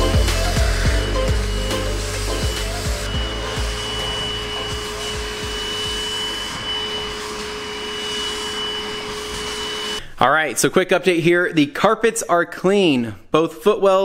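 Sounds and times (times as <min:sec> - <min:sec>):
vacuum sucking across carpet: 0:00.0 - 0:10.0
wet vacuum motor whine: 0:00.0 - 0:10.0.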